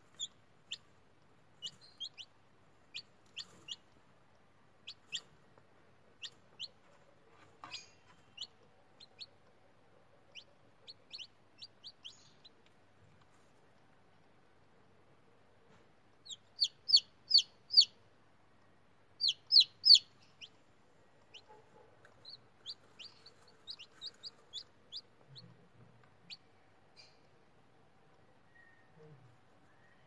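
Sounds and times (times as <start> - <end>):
chicks peeping: 0.0 - 14.3, 15.7 - 18.0, 19.2 - 29.7.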